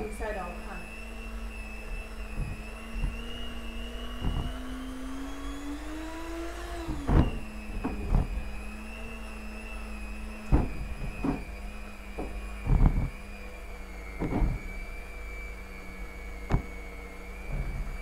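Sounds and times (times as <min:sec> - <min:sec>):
electric hand mixer humming: 0:00.0 - 0:18.0.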